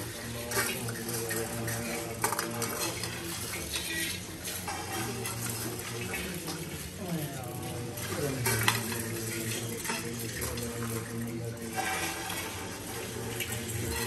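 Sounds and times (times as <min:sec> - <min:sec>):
rice rattling on metal plates: 0:00.0 - 0:07.0, 0:07.6 - 0:14.0
low group chant: 0:00.0 - 0:14.0.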